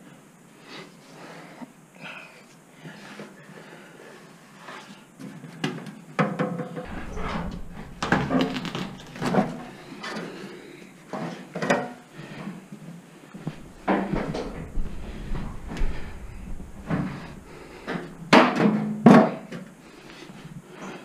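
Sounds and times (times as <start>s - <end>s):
metal knocks: 6.8s - 10.0s, 13.4s - 18.7s.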